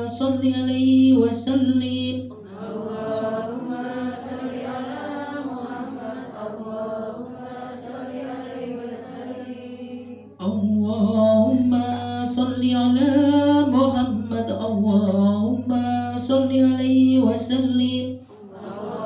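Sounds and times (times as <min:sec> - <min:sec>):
voice through loudspeaker: 0:00.0 - 0:02.5, 0:10.4 - 0:18.9
women chanting in unison: 0:02.4 - 0:10.4, 0:18.3 - 0:19.0.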